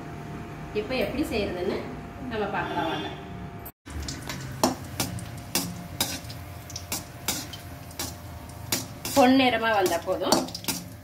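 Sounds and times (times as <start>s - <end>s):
nuts sizzling in oil: 3.9s - 11.0s.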